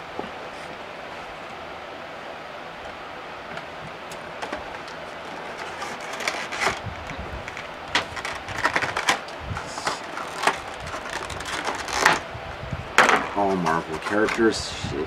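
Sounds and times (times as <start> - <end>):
plastic and cardboard crinkling: 4.2 - 12.3.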